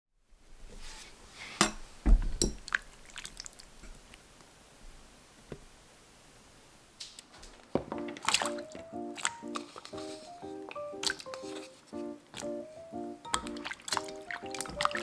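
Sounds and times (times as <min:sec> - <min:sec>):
wet squishy broth sounds: 0:02.5 - 0:04.2, 0:08.2 - 0:11.7, 0:13.3 - 0:15.0.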